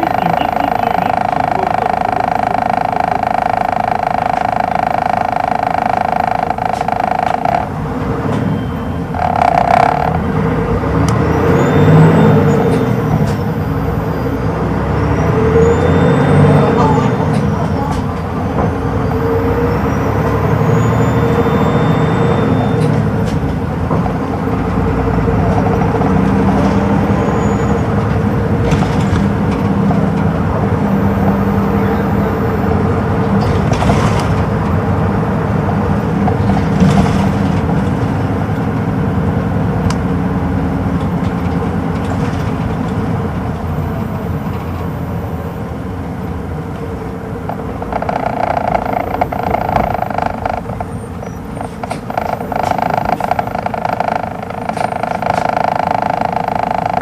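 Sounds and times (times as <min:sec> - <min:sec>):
higher tone: 0:00.0 - 0:07.8
bus diesel engine humming: 0:00.0 - 0:57.0.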